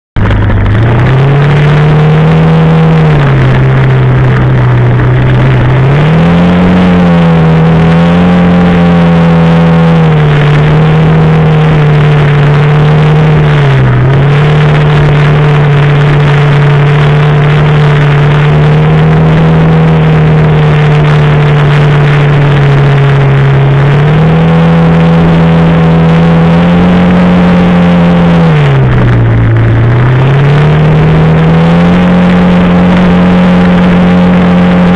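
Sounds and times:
quad bike engine under throttle: 0.2s - 34.9s.

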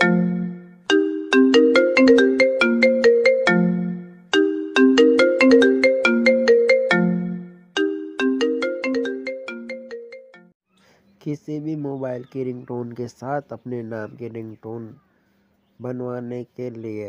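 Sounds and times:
phone ringtone melody: 0.0s - 10.6s.

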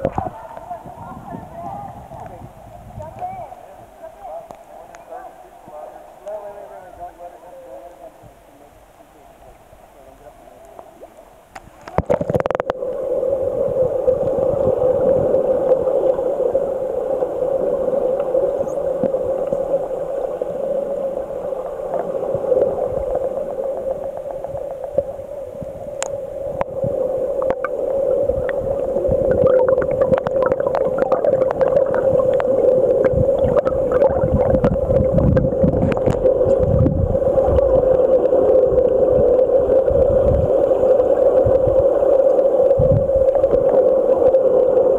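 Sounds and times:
underwater clicks and swishes: 0.0s - 0.8s, 4.4s - 5.1s, 10.6s - 13.1s, 17.2s - 20.0s, 21.2s - 44.9s
underwater hum: 0.0s - 44.9s
bubbles: 11.0s - 44.9s.

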